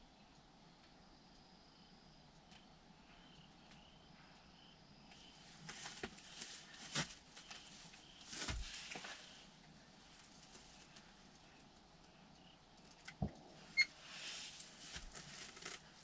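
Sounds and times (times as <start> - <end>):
rustles and light clicks: 5.1 - 16.0.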